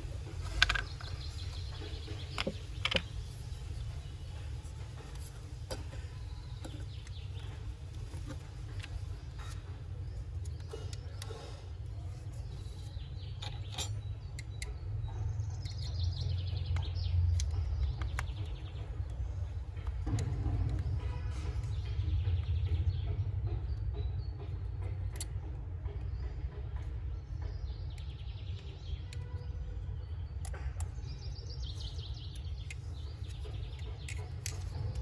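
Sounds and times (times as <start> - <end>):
steady low rumble: 0.0 - 28.7
bird chirping: 0.0 - 35.0
plastic parts clicking: 0.2 - 3.9, 31.8 - 35.0.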